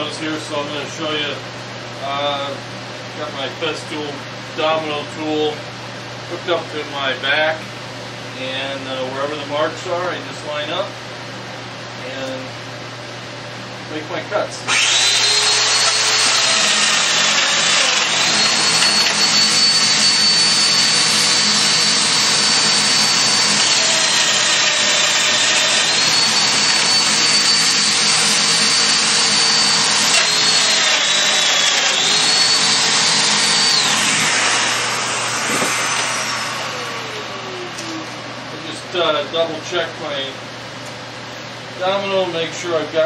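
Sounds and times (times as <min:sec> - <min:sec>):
dust extractor running: 0:13.1 - 0:40.6
power tool motor whining: 0:14.7 - 0:38.3.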